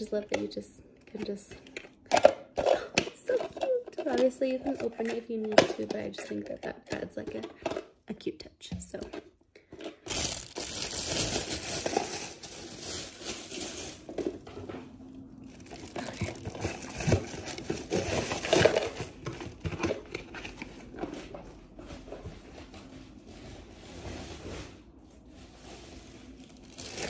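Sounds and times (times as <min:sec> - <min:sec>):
plastic bag crinkling: 0:09.9 - 0:14.5, 0:15.4 - 0:21.1, 0:26.2 - 0:27.0.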